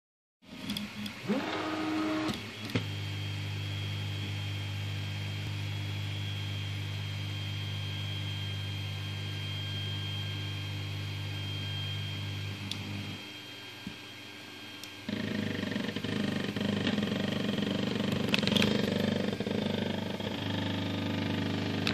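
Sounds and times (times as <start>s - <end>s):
stepper motors whining: 0.6s - 3.2s, 14.8s - 21.9s
low motor hum: 14.8s - 21.9s.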